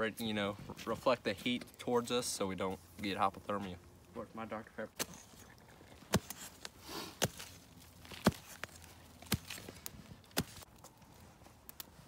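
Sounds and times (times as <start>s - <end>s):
digging tool striking ground: 6.0s - 10.7s.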